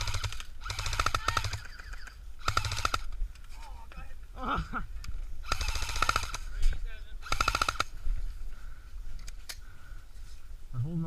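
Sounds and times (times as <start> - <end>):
airsoft rifle bursts: 0.0 - 3.1, 5.4 - 6.5, 7.2 - 8.0.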